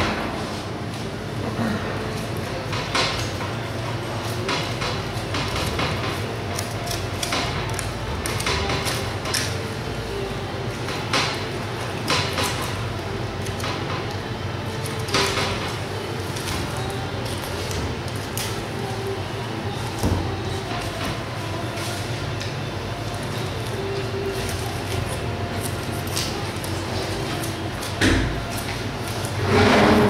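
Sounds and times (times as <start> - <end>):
steady background noise: 0.0 - 30.0.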